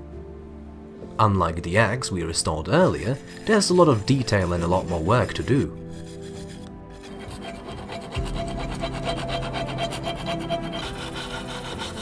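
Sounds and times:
wire brush scraping rusty metal: 2.7s - 12.0s.

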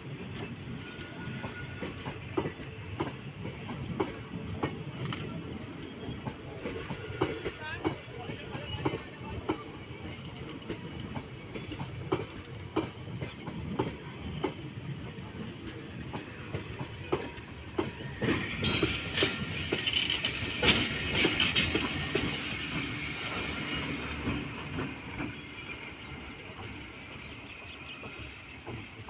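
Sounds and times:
train rolling past: 0.0s - 29.0s.

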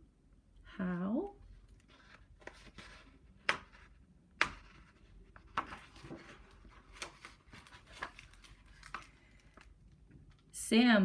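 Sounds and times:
book pages turning: 1.5s - 9.8s.

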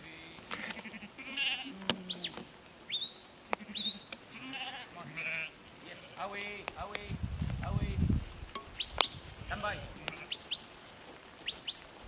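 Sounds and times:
sheep bleating: 0.6s - 2.3s, 3.5s - 6.4s, 9.5s - 10.4s.

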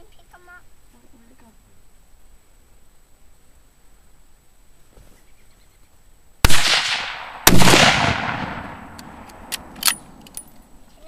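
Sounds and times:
rifle shots with echo: 6.4s - 10.2s.

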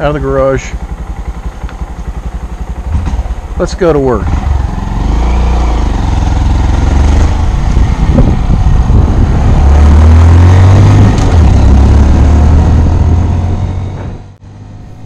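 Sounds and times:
motorcycle engine accelerating: 0.0s - 15.0s
wind buffeting microphone: 5.8s - 11.8s.

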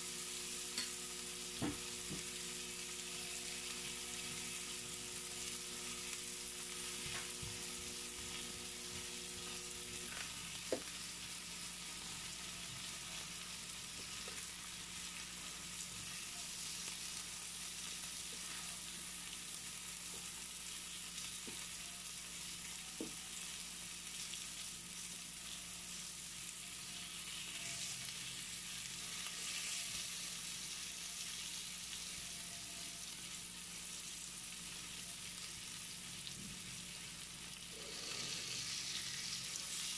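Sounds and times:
meat sizzling on a grill: 0.0s - 39.9s.

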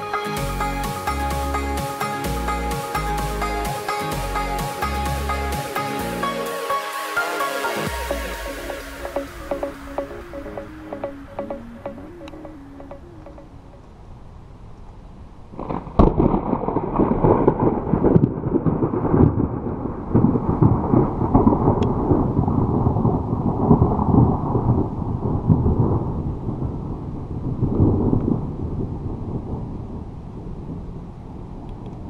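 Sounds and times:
rolling thunder rumble: 15.4s - 32.0s
thunder crack: 15.5s - 30.8s.

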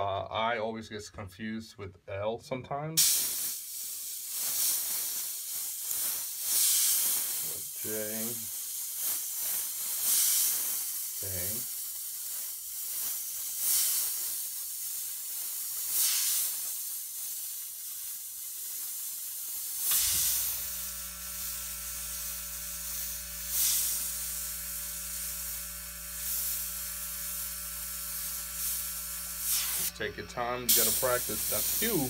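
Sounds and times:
puffs of air: 3.0s - 30.0s, 30.7s - 32.0s
airbrush hissing: 3.0s - 32.0s
compressor humming: 19.9s - 32.0s.

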